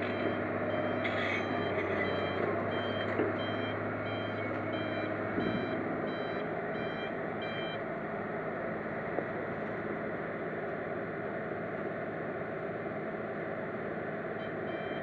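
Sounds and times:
warning alarm beeping: 0:00.0 - 0:07.8, 0:14.4 - 0:15.0
excavator diesel engine running: 0:00.0 - 0:15.0.

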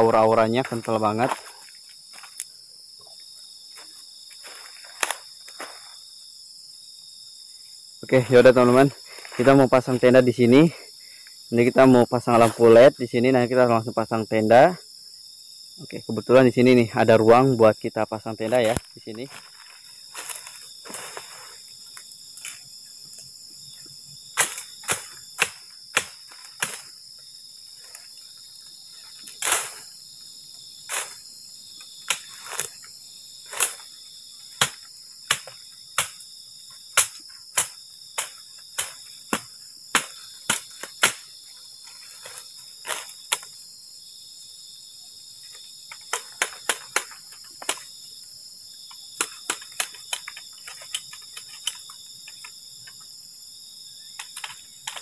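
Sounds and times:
night insects chorus: 0:00.0 - 0:55.0
dry bamboo cracking and snapping: 0:04.5 - 0:05.6, 0:18.5 - 0:22.7, 0:24.4 - 0:26.9, 0:32.0 - 0:32.9, 0:33.5 - 0:33.9, 0:36.9 - 0:41.3, 0:45.9 - 0:47.9, 0:49.2 - 0:52.5, 0:54.2 - 0:55.0.

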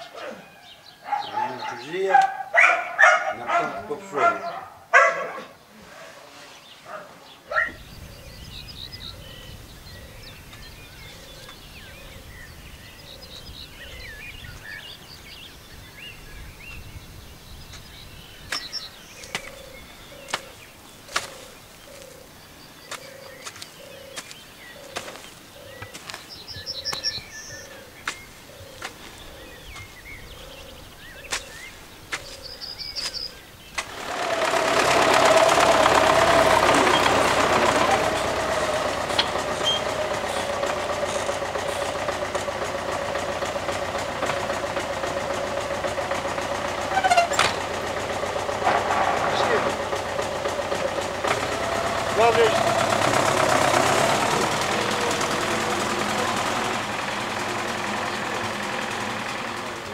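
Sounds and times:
birds singing: 0:00.0 - 0:59.9
low repeating bird call: 0:07.4 - 0:48.6
tractor engine: 0:07.5 - 0:59.9
hoe chopping into soil: 0:18.5 - 0:19.6, 0:20.2 - 0:21.6, 0:24.2 - 0:26.2, 0:28.0 - 0:29.1, 0:31.3 - 0:34.0.

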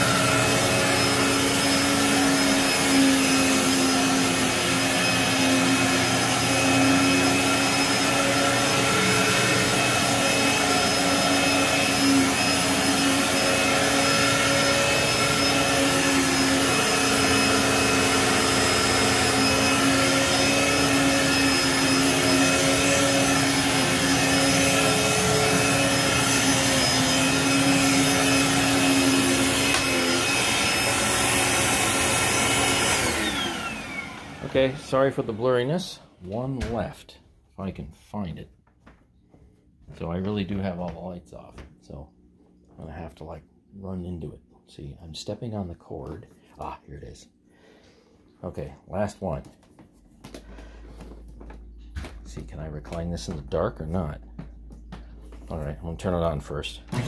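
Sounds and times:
vacuum cleaner running: 0:00.0 - 0:36.9, 0:50.2 - 0:57.0.

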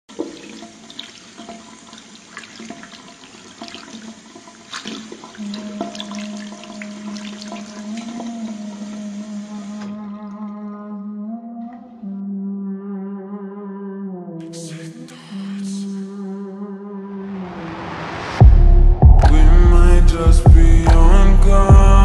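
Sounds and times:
tap water over hands: 0:00.1 - 0:10.5
small splashes and clicks: 0:00.1 - 0:10.7.

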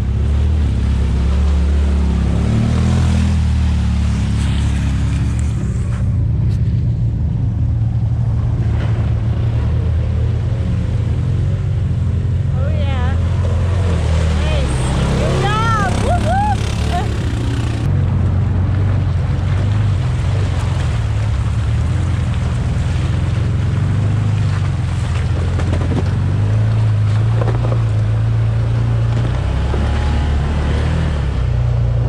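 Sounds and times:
vehicle engine running: 0:00.0 - 0:32.0
water splashing: 0:07.8 - 0:32.0.

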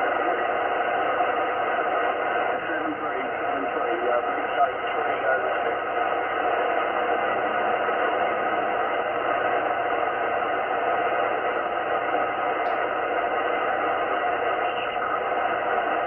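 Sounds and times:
radio static hiss: 0:00.0 - 0:16.0.

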